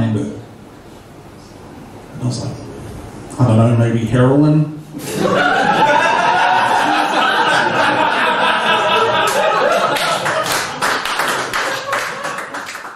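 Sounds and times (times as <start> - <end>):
audience laughing: 5.0 - 12.7
audience clapping: 5.8 - 12.9.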